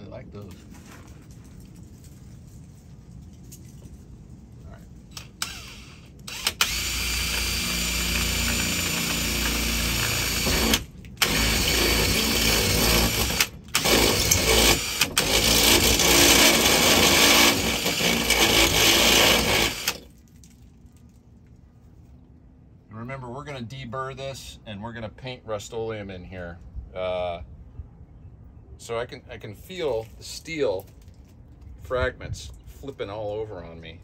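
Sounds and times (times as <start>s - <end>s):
cordless drill cutting sheet steel: 5.2s - 20.1s.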